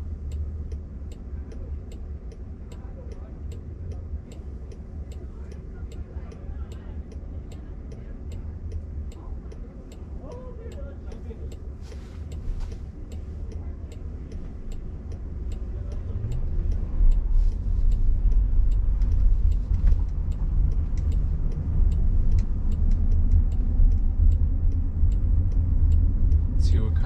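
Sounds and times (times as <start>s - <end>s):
light regular ticking: 0.0s - 27.0s
road and tyre rumble: 0.0s - 27.0s.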